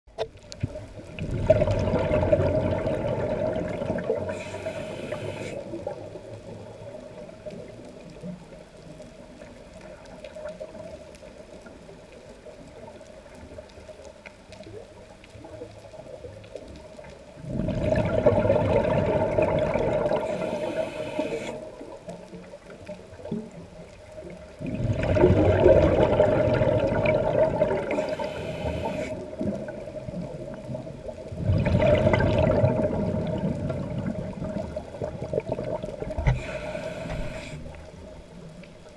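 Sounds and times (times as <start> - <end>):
underwater water noise: 0.1 - 38.9
diver exhaling bubbles: 0.7 - 6.0, 17.4 - 21.8, 24.6 - 38.0
regulator hiss: 4.3 - 5.7, 20.2 - 21.8, 27.9 - 29.2, 36.2 - 38.0.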